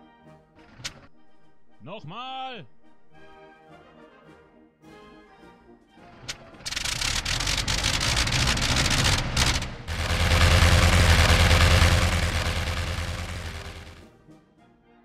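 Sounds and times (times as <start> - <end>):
propeller engine running: 6.7 - 14.0.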